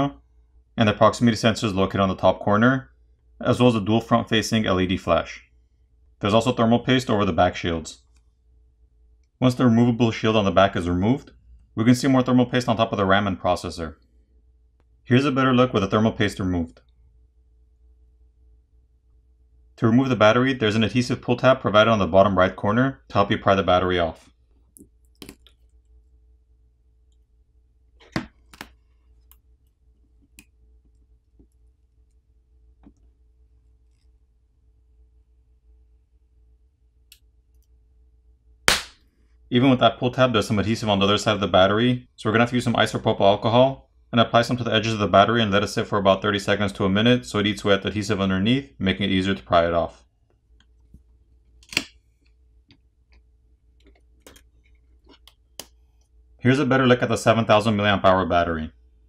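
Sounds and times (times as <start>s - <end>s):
adhesive tab snapping: 38.7s - 39.0s, 51.6s - 52.0s.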